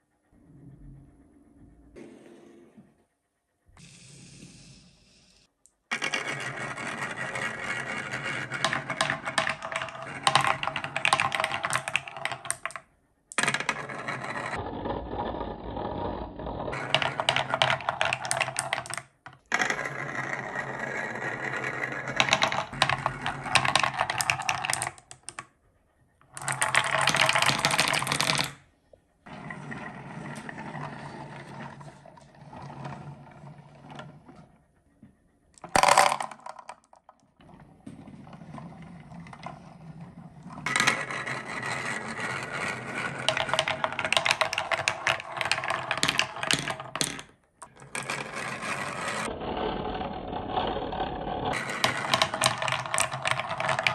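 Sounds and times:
marbles rattling down wooden track: 0:05.9 - 0:25.5, 0:26.3 - 0:28.6, 0:35.6 - 0:37.2, 0:38.2 - 0:49.4, 0:50.0 - 0:53.9.

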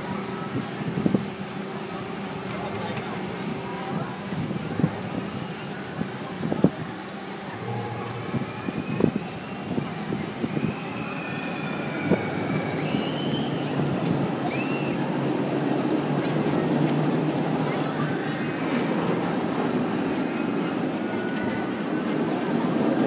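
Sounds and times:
low mechanical rumble: 0:00.0 - 0:18.2
brief high squeals: 0:11.2 - 0:13.8.

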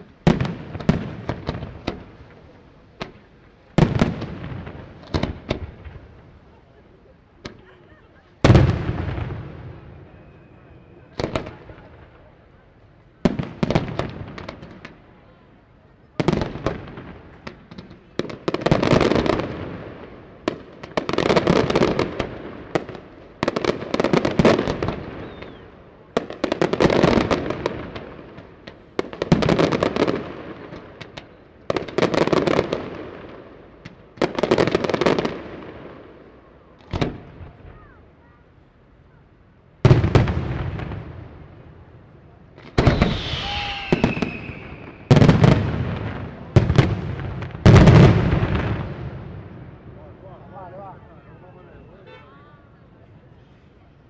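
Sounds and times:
firework crackle: 0:00.0 - 0:38.1, 0:39.8 - 0:50.3
firework whistle gliding down: 0:42.8 - 0:45.2.

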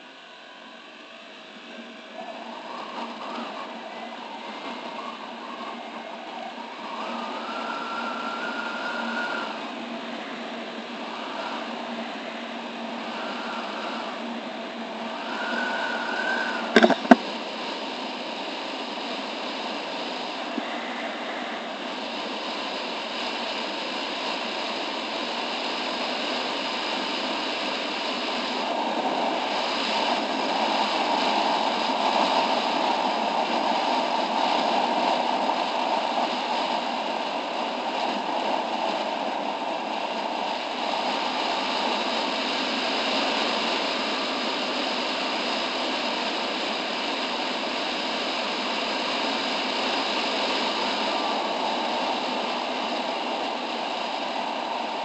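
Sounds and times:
wind and road rush: 0:01.6 - 0:55.0
scooter engine running: 0:16.7 - 0:17.2.

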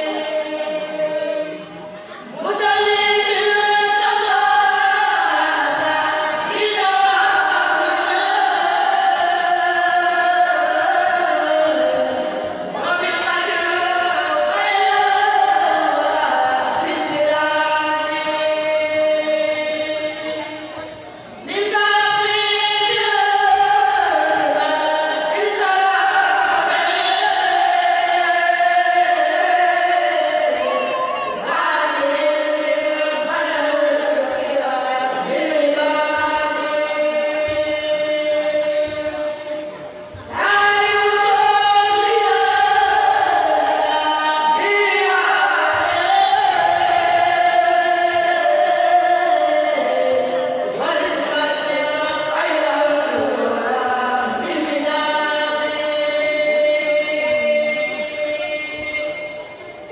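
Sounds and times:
young voices chanting in unison: 0:21.9 - 0:54.7.

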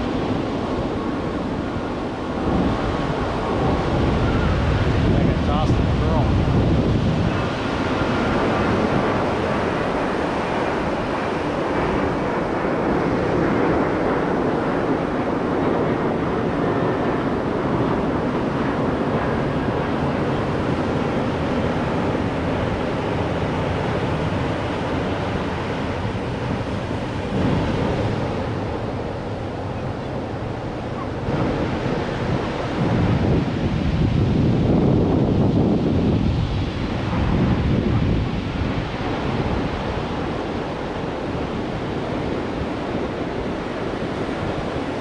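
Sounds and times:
surf breaking on sand: 0:00.0 - 0:45.0
wind buffeting microphone: 0:00.0 - 0:45.0.

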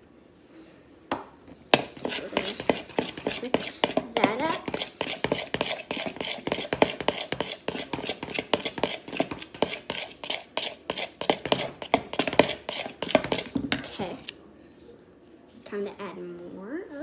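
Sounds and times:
spoon stirring slime: 0:01.4 - 0:14.1.

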